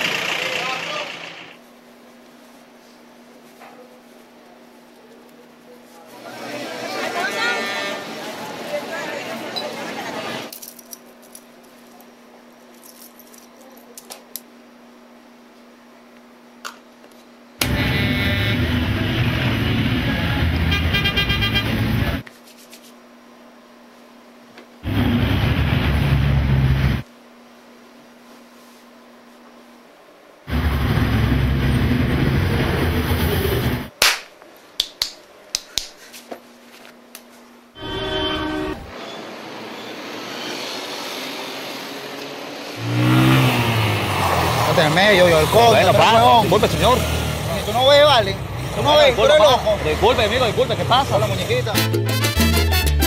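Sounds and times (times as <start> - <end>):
dense traffic: 0.0 - 1.6, 6.2 - 10.5, 17.6 - 22.2, 30.5 - 33.9, 37.8 - 51.8
crowd din: 6.1 - 10.5
loud street crowd noise: 6.1 - 10.5, 17.6 - 22.2, 37.8 - 41.9
steady low hum: 23.0 - 34.0
loud sharp crack: 33.9 - 35.2.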